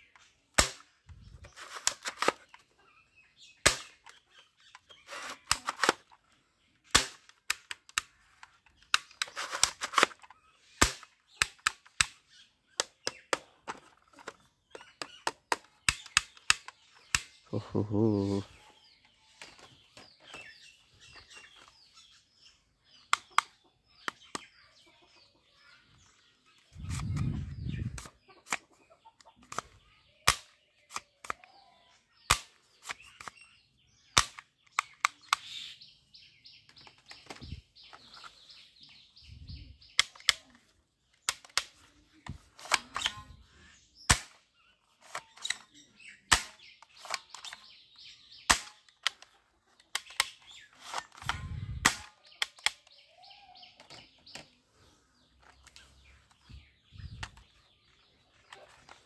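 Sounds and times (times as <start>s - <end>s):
birds chirping: 0.0s - 59.0s
plastic toy guns clicking: 1.6s - 2.6s, 3.6s - 12.2s, 12.8s - 17.4s, 29.4s - 31.5s, 34.2s - 35.4s, 40.0s - 41.9s, 46.3s - 47.7s, 48.5s - 52.9s.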